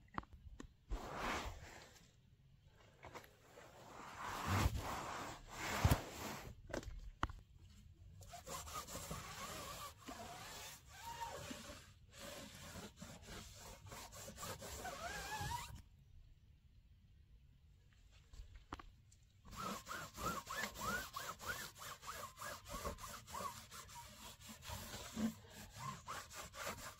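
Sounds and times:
cloth wiping wet car: 0:00.9 - 0:02.0, 0:03.1 - 0:06.6, 0:08.3 - 0:15.7, 0:19.5 - 0:26.9.

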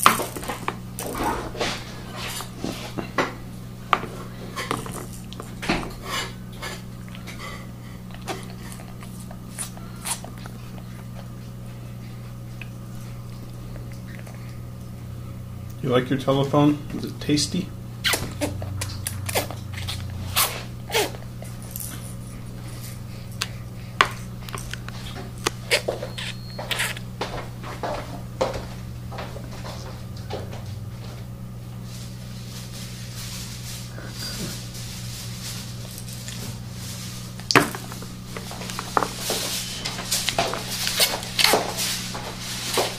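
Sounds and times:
steady low hum: 0:00.0 - 0:42.9
baby chewing teething toy: 0:08.1 - 0:11.4, 0:18.0 - 0:27.1.

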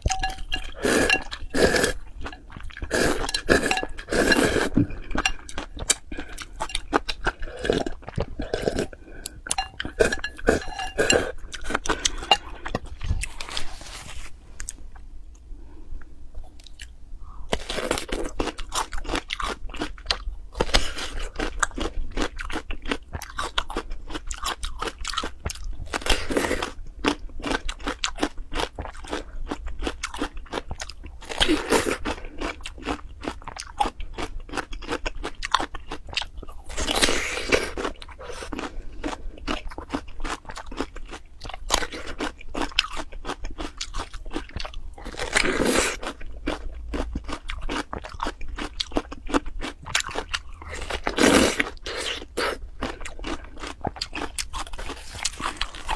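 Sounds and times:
crunchy chewing: 0:17.5 - 0:55.9.

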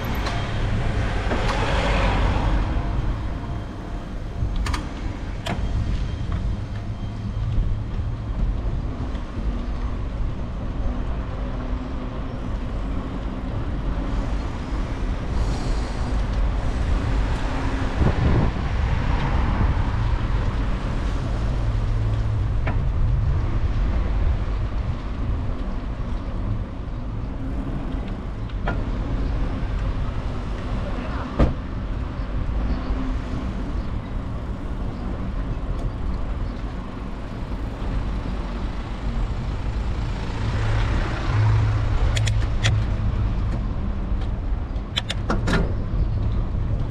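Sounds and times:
car passing: 0:00.0 - 0:04.0
wind and road noise: 0:00.0 - 0:46.9.

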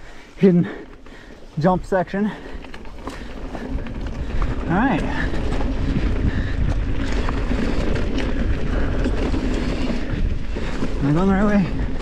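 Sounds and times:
bike rattling over bumps: 0:00.0 - 0:12.0
tyres crunching over dirt: 0:00.5 - 0:12.0
wind rumbling on microphone: 0:02.6 - 0:12.0.

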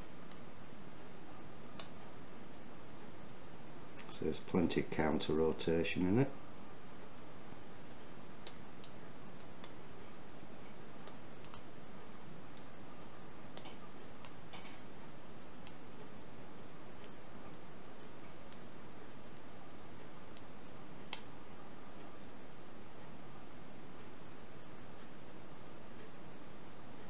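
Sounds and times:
faint high whine: 0:00.0 - 0:27.0
steady hiss: 0:00.0 - 0:27.0.

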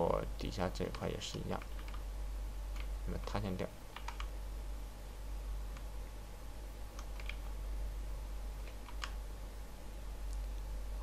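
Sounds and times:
steady low hum: 0:00.0 - 0:11.0
mouse and keyboard clicks: 0:07.0 - 0:07.5, 0:08.6 - 0:09.2.

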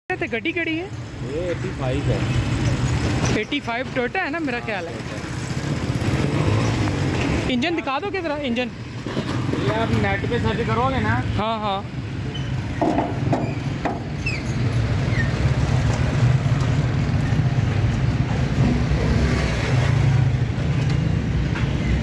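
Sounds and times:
road traffic rumble: 0:00.1 - 0:22.0
car bonnet clicks and knocks: 0:12.8 - 0:14.2.

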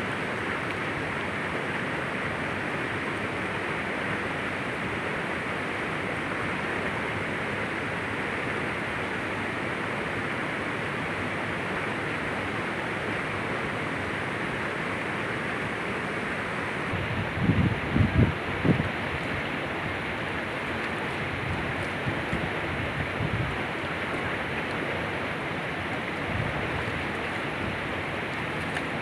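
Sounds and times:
river flowing over rocks: 0:00.0 - 0:29.0.

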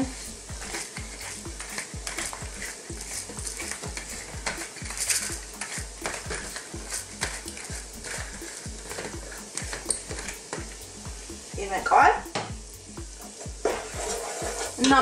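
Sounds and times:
pepper mill grinding: 0:00.0 - 0:11.4
onions sizzling in oil: 0:00.0 - 0:15.0.

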